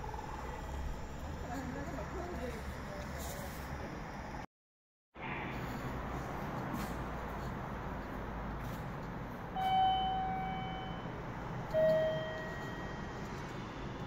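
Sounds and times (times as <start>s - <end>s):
electronic chime tones: 9.6s - 11.1s, 11.7s - 13.1s.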